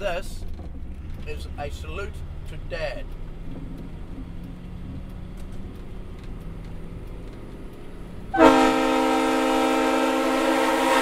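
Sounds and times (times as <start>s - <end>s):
truck diesel engine rumble: 0.0s - 11.0s
train air horn chord: 8.3s - 11.0s.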